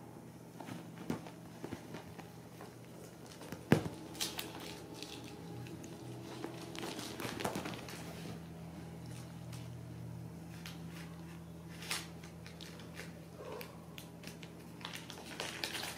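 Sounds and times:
faint steady hum: 0:00.0 - 0:15.9
kittens' paws scuffling on cushion: 0:00.5 - 0:13.2.

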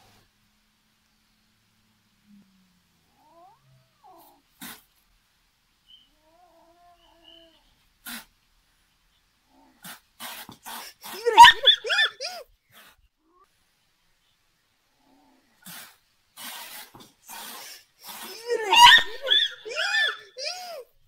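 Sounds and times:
kitten hissing: 0:03.2 - 0:05.0, 0:07.0 - 0:08.3, 0:09.5 - 0:13.0, 0:15.0 - 0:20.8
kitten squealing cries: 0:11.1 - 0:12.4, 0:18.2 - 0:20.8.

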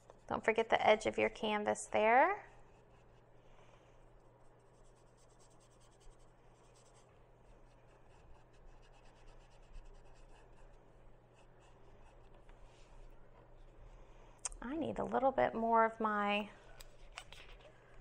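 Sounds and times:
paintbrush scratching on canvas: 0:02.5 - 0:03.4, 0:04.2 - 0:13.2.

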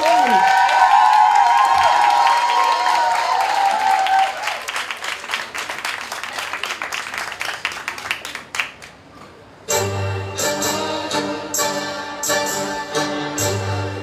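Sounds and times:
audience applause: 0:00.0 - 0:09.0
music: 0:09.7 - 0:14.0.

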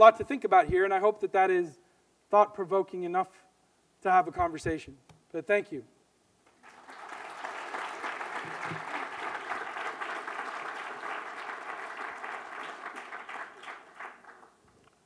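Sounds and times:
audience applauding: 0:06.5 - 0:14.6.

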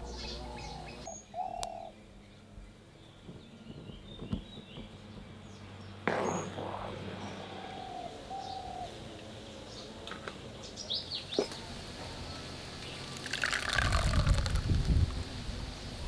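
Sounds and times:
birds chirping: 0:00.0 - 0:10.0
thick pulp pouring into sieve: 0:13.2 - 0:14.8.

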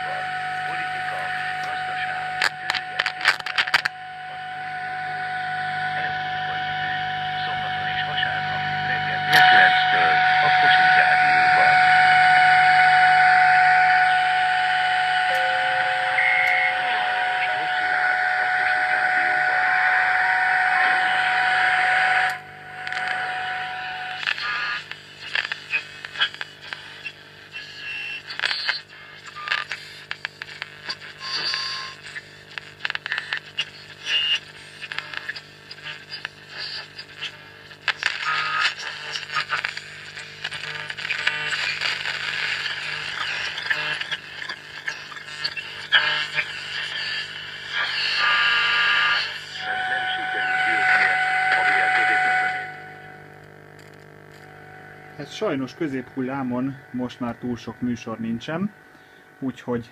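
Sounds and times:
low hum: 0:00.0 - 0:24.2, 0:49.6 - 0:59.5
radio static hiss with whistle: 0:00.0 - 0:59.9
crackles and clicks: 0:02.4 - 0:04.0, 0:22.1 - 0:23.3, 0:24.0 - 0:49.8, 0:52.7 - 0:58.0.

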